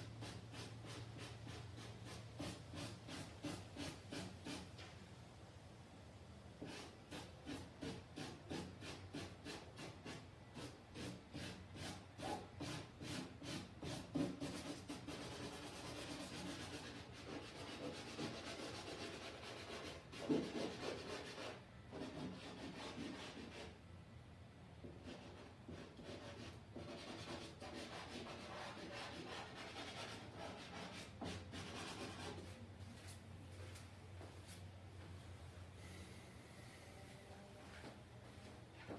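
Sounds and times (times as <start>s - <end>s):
pencil scratching on paper: 0.2s - 4.7s, 6.6s - 23.8s, 25.0s - 32.5s.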